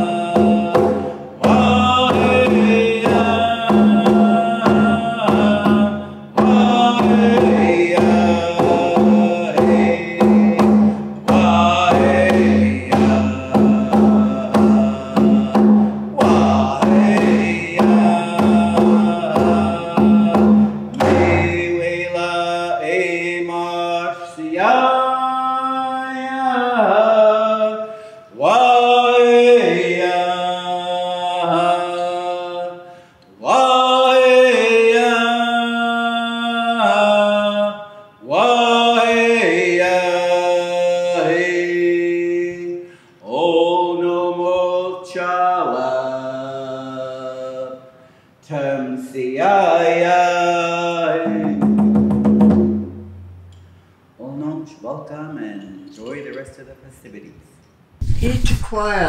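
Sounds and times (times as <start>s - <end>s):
frame drum beat: 0.0s - 22.2s, 51.2s - 53.5s
man singing in chanting voice: 0.0s - 51.9s.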